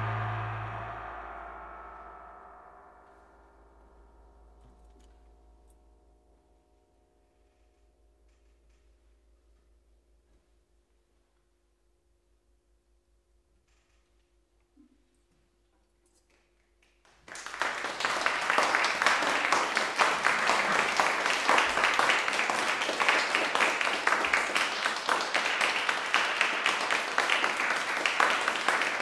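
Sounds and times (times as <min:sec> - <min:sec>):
audience applause: 0:17.2 - 0:29.0.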